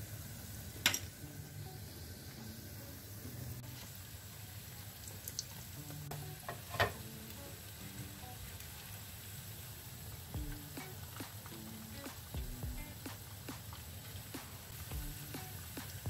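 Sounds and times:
potatoes sizzling in oil: 0:00.0 - 0:16.0
utensils clicking against pan: 0:06.5 - 0:07.0.

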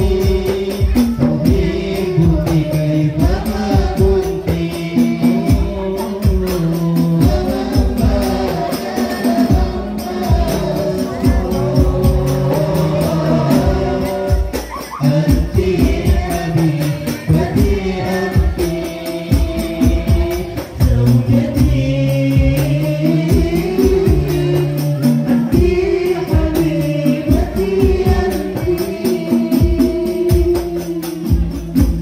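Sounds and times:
percussion beat: 0:00.0 - 0:32.0
women singing into microphones: 0:00.0 - 0:32.0.

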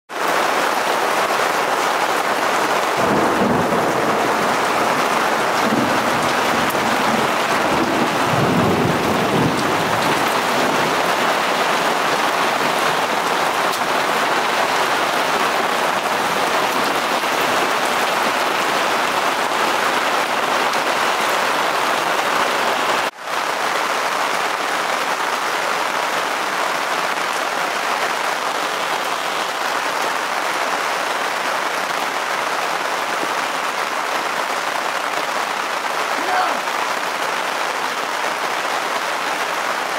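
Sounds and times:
rain splashing on gravel: 0:00.1 - 0:39.9
thunder rumble: 0:02.6 - 0:19.9.

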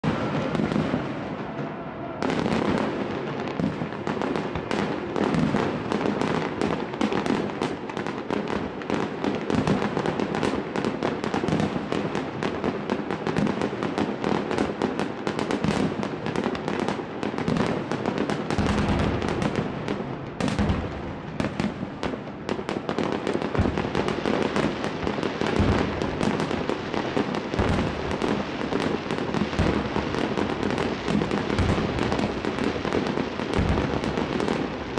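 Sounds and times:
deep fireworks booms: 0:00.0 - 0:34.9
fireworks bangs and crackling: 0:00.0 - 0:34.9.

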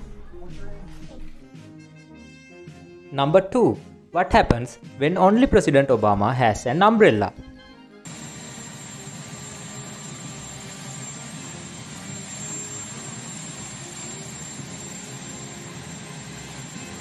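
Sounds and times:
helicopter turbine engines running: 0:08.1 - 0:17.0.

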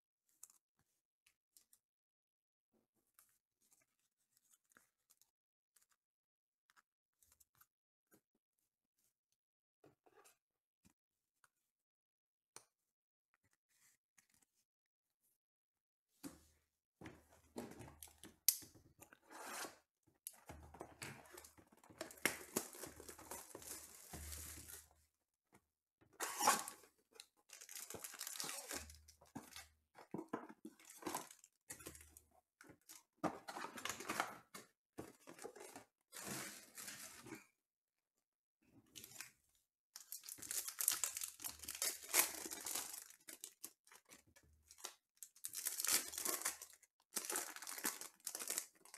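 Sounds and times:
plastic wrapping tearing and crinkling: 0:22.0 - 0:24.8, 0:27.5 - 0:29.0, 0:40.0 - 0:44.0, 0:45.5 - 0:48.9.

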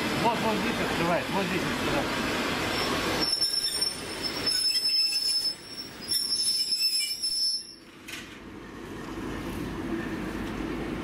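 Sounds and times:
train brakes squealing: 0:02.7 - 0:07.9.

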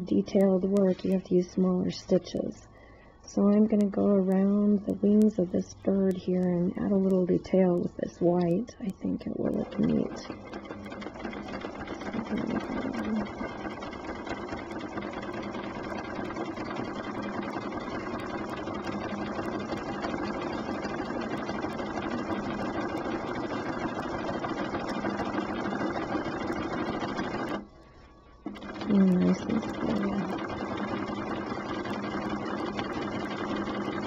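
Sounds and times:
sewing machine stitching: 0:09.4 - 0:27.6, 0:28.4 - 0:34.0.

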